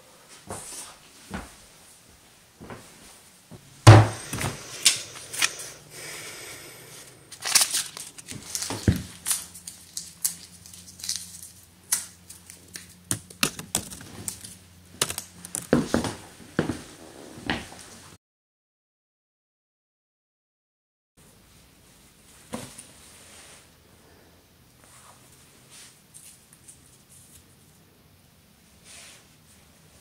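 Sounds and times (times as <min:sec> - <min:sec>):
low steady hum: 0:00.0 - 0:18.1
heavy thump: 0:03.5 - 0:04.6.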